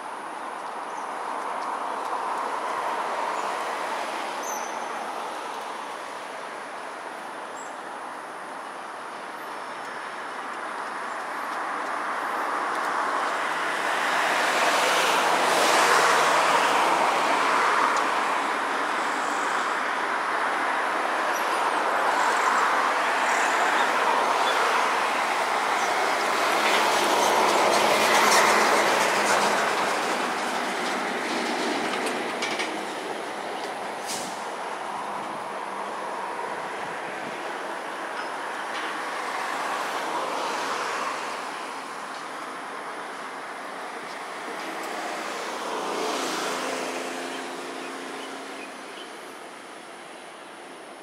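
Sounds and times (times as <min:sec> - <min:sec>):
passing vehicle rushing: 0:42.8 - 0:49.4.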